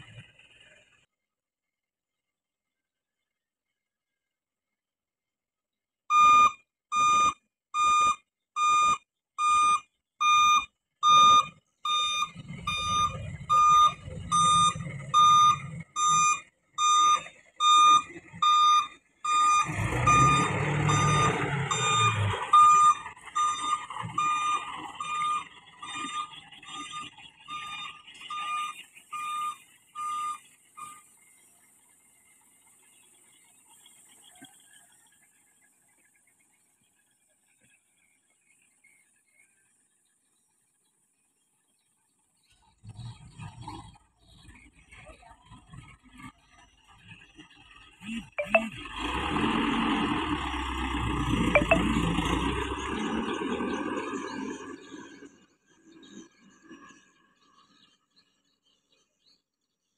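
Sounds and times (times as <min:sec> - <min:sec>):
diesel engine: 0:00.0 - 0:01.1, 0:06.1 - 0:35.5, 0:42.8 - 0:56.8
truck reversing alarm beeping: 0:06.1 - 0:31.1, 0:48.0 - 0:48.8, 0:50.4 - 0:54.5.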